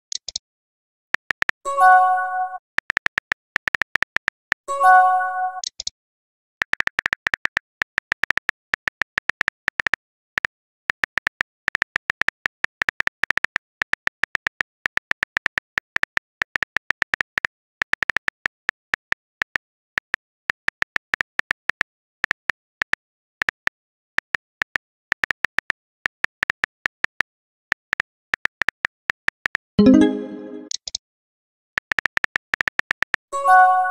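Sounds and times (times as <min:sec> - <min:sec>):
phone keyboard typing clicks: 0:01.2 - 0:01.6, 0:06.6 - 0:10.0, 0:31.8 - 0:33.2.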